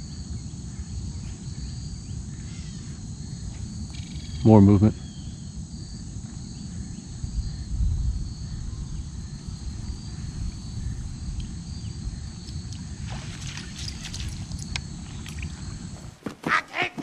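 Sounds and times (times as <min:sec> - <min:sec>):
insects chirring: 0:00.0 - 0:17.0
fish splashing: 0:13.0 - 0:15.6.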